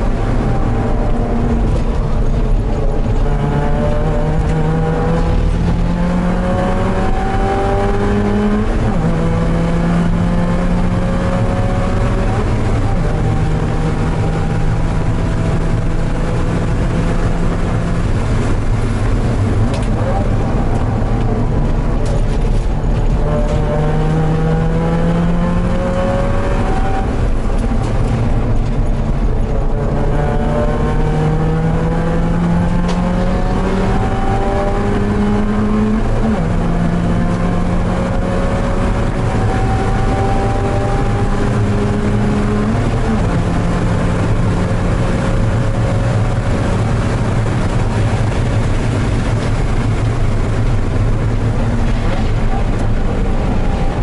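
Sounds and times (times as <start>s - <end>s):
car engine at full throttle: 0.0s - 54.0s
steady rush of noise: 0.0s - 54.0s.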